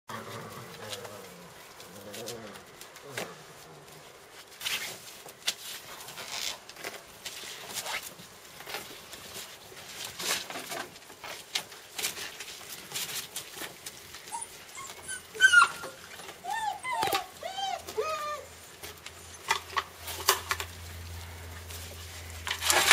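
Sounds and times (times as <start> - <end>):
puppies scuffling: 0.1 - 22.9
puppies whining and yelping: 14.2 - 19.9.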